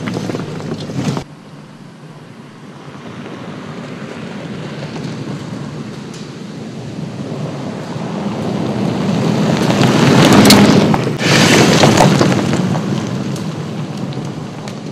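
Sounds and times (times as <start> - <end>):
tyres crunching on gravel: 0.0 - 1.3, 2.9 - 14.9.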